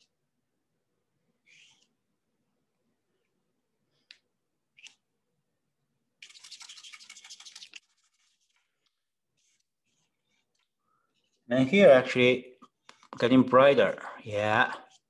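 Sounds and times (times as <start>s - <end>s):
paintbrush scrubbing on paper: 1.4s - 2.0s, 6.2s - 11.6s.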